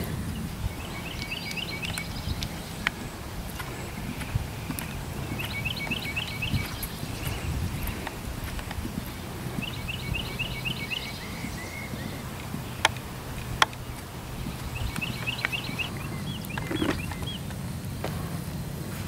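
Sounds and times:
hooves thudding on grass: 0:00.0 - 0:19.0
songbird chirping: 0:00.0 - 0:19.0
sharp clicks: 0:12.4 - 0:17.6.

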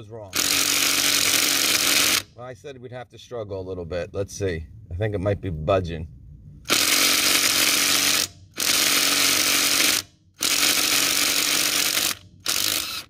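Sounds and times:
impact driver hammering on lug nut: 0:00.3 - 0:02.3, 0:06.7 - 0:13.0.

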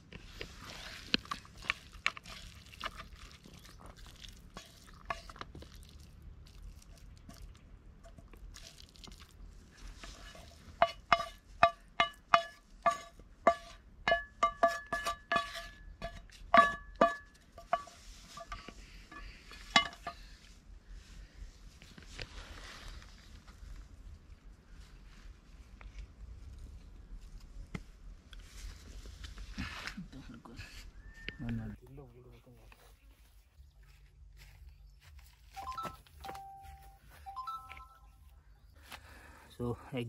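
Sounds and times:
spatula scraping and knocking pan: 0:09.9 - 0:20.3
metal pan ringing: 0:10.8 - 0:18.6.

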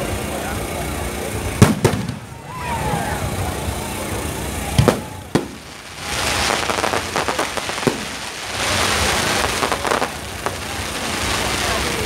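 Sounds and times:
fireworks crackling: 0:00.0 - 0:12.0
sharp firework pops: 0:01.6 - 0:02.4, 0:04.7 - 0:12.0.

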